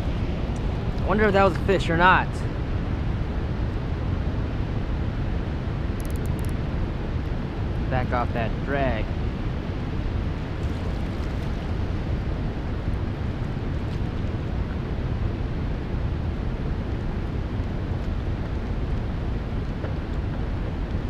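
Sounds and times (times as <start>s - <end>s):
wind buffeting microphone: 2.3s - 21.0s.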